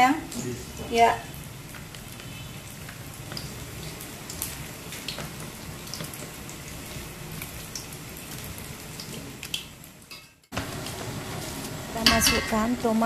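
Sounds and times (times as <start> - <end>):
broth bubbling with small pops: 1.6 - 11.0.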